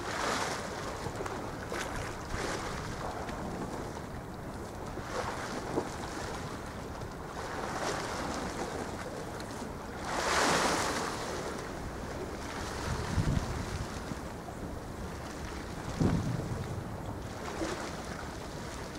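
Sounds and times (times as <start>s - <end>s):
sea water washing at shore: 0.0s - 18.9s
wind buffeting microphone: 0.0s - 18.9s.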